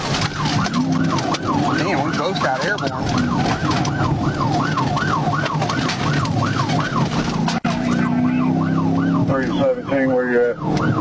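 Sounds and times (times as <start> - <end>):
car driving at speed: 0.0 - 11.0
police siren yelping: 0.0 - 11.0.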